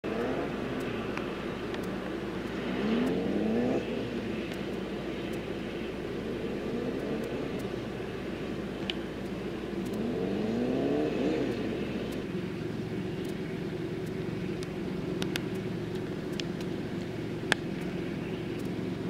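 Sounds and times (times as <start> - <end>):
engine running and revving: 0.0 - 19.0
light clicks: 0.7 - 3.2, 8.8 - 10.1, 13.2 - 18.8.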